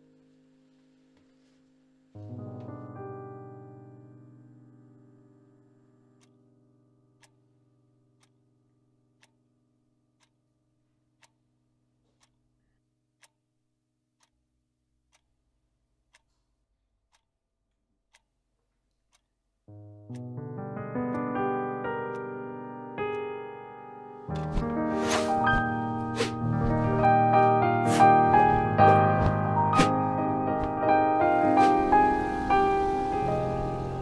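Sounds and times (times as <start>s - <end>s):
held piano chord: 0.0s - 8.0s, 19.7s - 34.0s
piano music: 0.0s - 8.2s, 19.7s - 34.0s
clock ticking: 6.2s - 6.4s, 7.1s - 7.5s, 8.2s - 8.4s, 9.1s - 9.4s, 10.1s - 11.4s, 12.0s - 13.4s, 14.2s - 14.4s, 15.0s - 18.4s, 19.0s - 22.4s, 23.0s - 32.8s.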